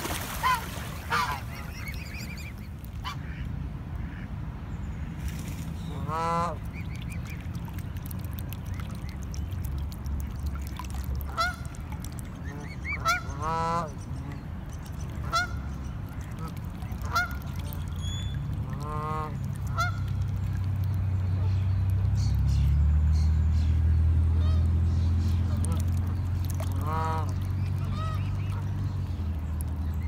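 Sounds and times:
geese honking: 0.3 - 3.4, 5.9 - 7.2, 12.4 - 14.0, 15.2 - 15.6, 16.3 - 17.7, 18.6 - 20.2, 26.8 - 28.7
steady low rumble: 2.5 - 30.0.

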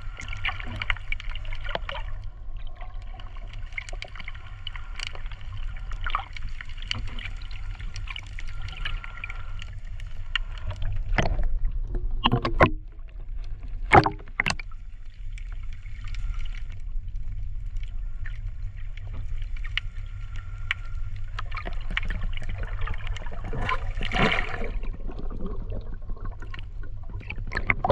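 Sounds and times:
underwater rumble of water: 0.0 - 27.9
water sloshes and knocks: 10.3 - 17.4, 20.4 - 27.9.

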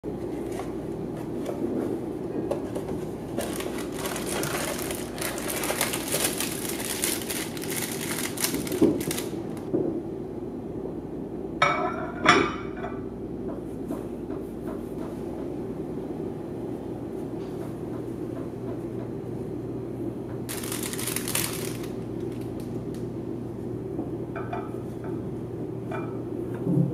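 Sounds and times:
plastic wrapper crinkling: 3.3 - 9.7, 20.5 - 23.0.

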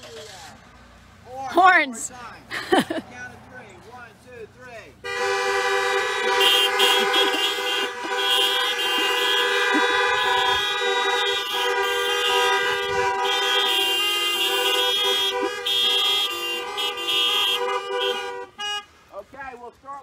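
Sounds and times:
car horns honking: 4.9 - 19.4.

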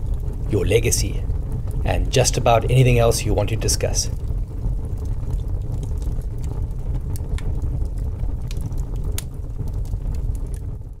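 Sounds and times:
fire crackles and pops: 0.0 - 11.0
low rumble of flames: 0.0 - 11.0.

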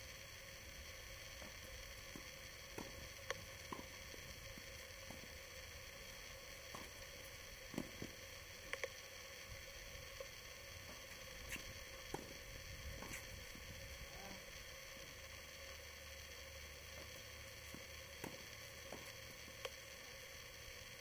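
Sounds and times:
low hiss and hum: 0.0 - 21.0
tennis ball pops: 1.4 - 4.0, 11.5 - 12.4.

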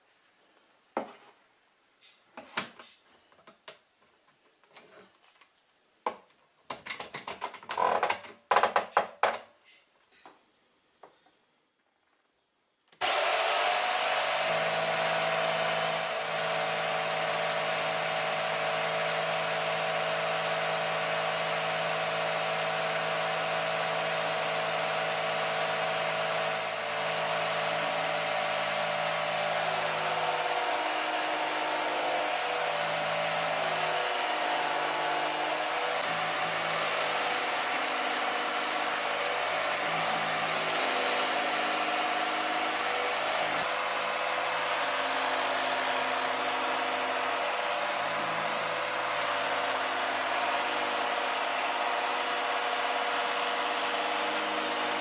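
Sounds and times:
jigsaw cutting board: 13.0 - 55.0
jigsaw running: 13.0 - 55.0.

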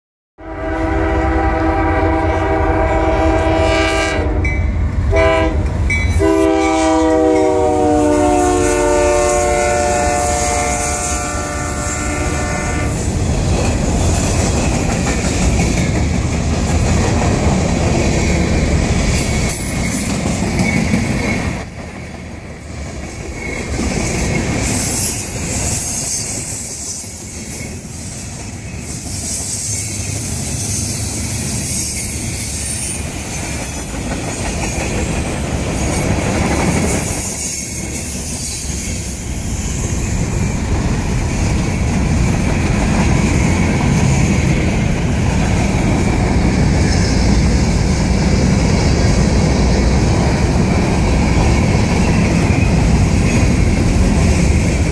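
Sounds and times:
locomotive horn blasts: 0.4 - 13.0.

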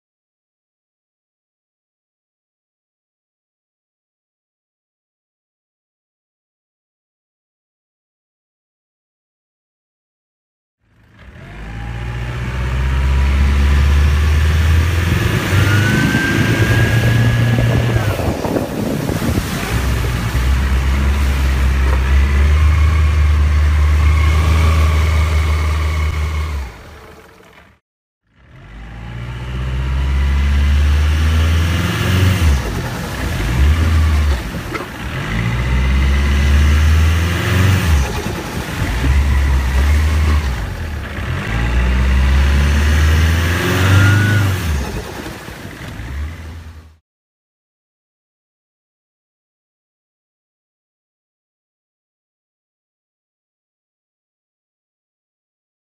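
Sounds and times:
boat outboard engine running: 10.8 - 47.0
wind: 10.8 - 47.0
rising whine: 11.3 - 27.4
water rushing: 12.5 - 27.5, 31.2 - 46.9.

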